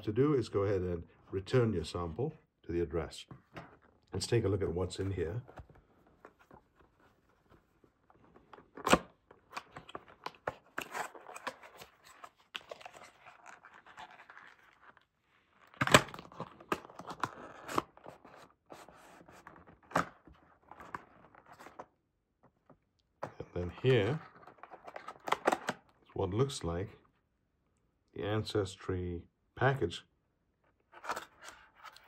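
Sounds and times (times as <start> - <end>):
cardboard rustling and scraping: 3.4 - 22.0, 23.5 - 25.8.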